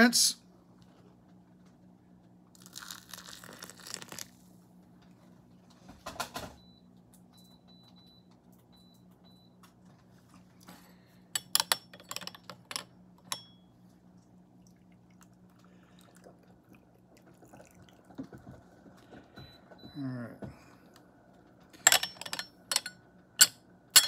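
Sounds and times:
low steady hum: 0:00.0 - 0:24.0
hot water pouring: 0:02.6 - 0:04.4
tea ware clinking: 0:11.4 - 0:13.5, 0:21.8 - 0:24.0.

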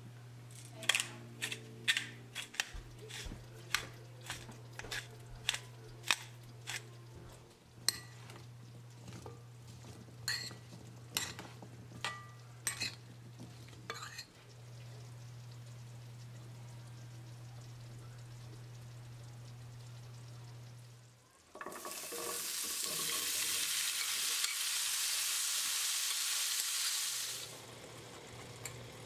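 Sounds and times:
steady low hum: 0:00.0 - 0:21.2
fork clinking against glass bowl: 0:07.9 - 0:08.5, 0:10.2 - 0:13.0, 0:13.9 - 0:14.3.

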